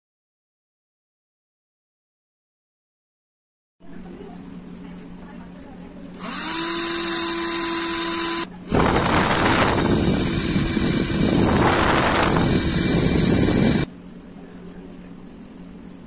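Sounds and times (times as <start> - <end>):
toy jet engine whine: 6.2 - 13.9
air blowing on microphone: 8.7 - 13.9.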